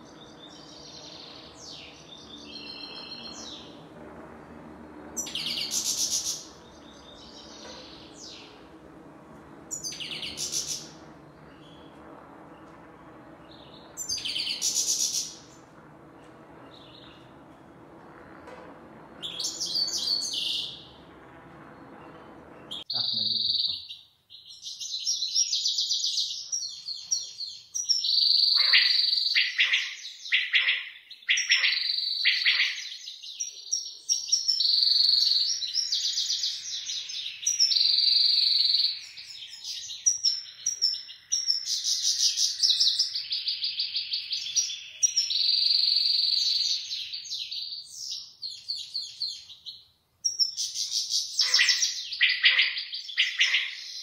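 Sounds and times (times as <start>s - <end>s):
goldfinch singing: 0.0s - 3.8s, 5.1s - 17.9s, 18.8s - 21.2s.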